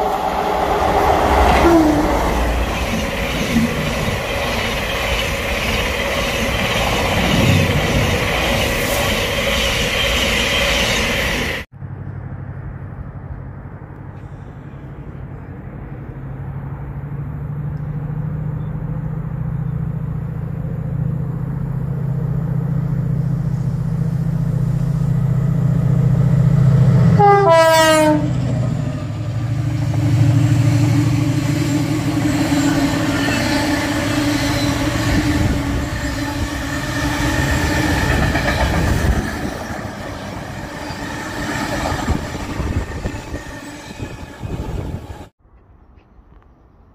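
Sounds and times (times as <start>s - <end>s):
freight wagons rumbling past: 0.0s - 11.7s
passenger train rushing past: 0.0s - 11.7s, 20.6s - 45.3s
locomotive engine drone: 0.0s - 45.3s
train horn: 27.1s - 28.4s.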